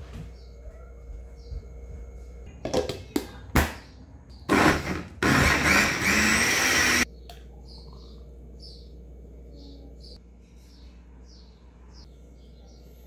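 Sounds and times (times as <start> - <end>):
blender motor running: 4.5 - 7.1.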